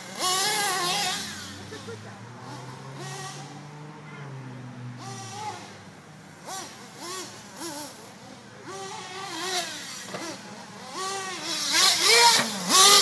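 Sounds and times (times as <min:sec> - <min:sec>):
small engine revving: 0:00.0 - 0:13.0.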